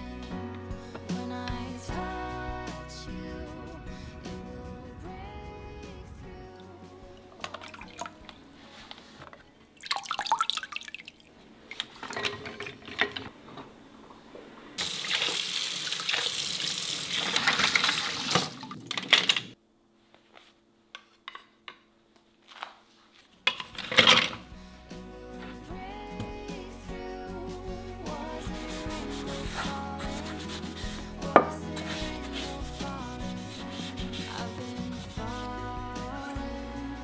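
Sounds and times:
water splashing and pouring: 7.1 - 9.0, 9.7 - 13.3, 14.8 - 19.6
kitchen tap running into sink: 14.8 - 19.5.

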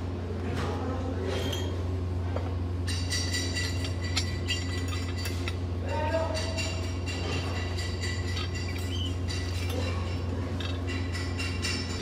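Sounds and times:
low electrical hum: 0.0 - 12.0
metal plates clinking: 2.8 - 12.0.

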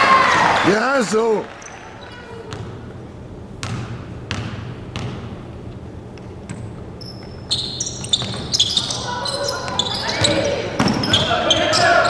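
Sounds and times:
basketball bouncing on hardwood: 2.5 - 2.8, 3.6 - 5.4
sneakers squeaking on floor: 3.6 - 5.4, 6.2 - 12.0.

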